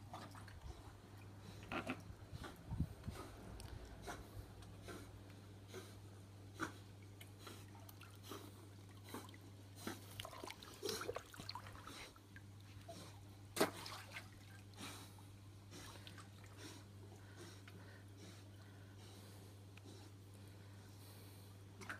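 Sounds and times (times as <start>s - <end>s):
water sloshing and splashing: 0.0s - 4.0s, 6.9s - 15.0s.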